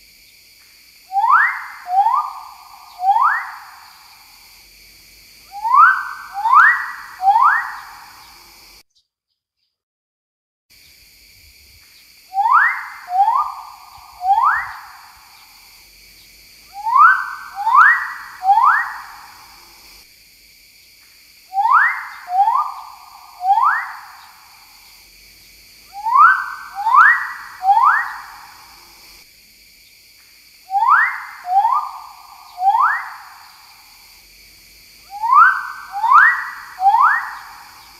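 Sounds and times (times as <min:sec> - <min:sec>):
bird whistled calls: 0:01.1 - 0:04.0, 0:05.5 - 0:08.1, 0:12.4 - 0:15.5, 0:16.8 - 0:19.4, 0:21.5 - 0:24.4, 0:25.9 - 0:28.5, 0:30.7 - 0:33.5, 0:35.1 - 0:37.9.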